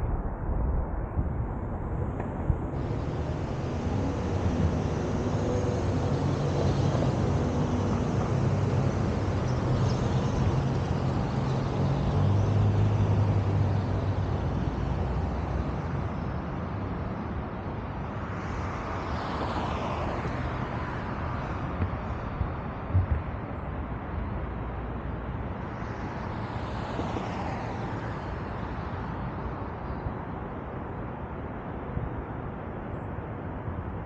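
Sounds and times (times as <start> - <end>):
vehicle passing with whine: 0.0 - 15.7
traffic engine hum: 0.0 - 31.8.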